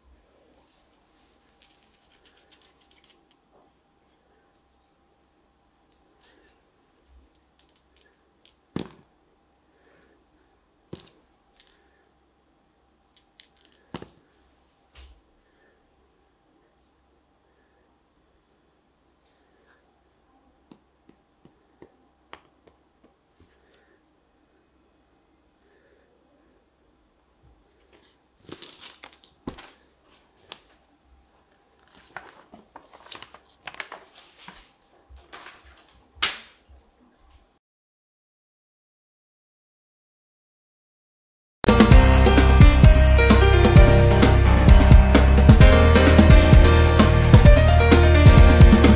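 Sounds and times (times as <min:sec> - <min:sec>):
plastic sheet and paper rustling: 0:00.6 - 0:03.4, 0:31.5 - 0:36.7
plastic pieces clicking: 0:07.3 - 0:09.0, 0:13.1 - 0:14.1.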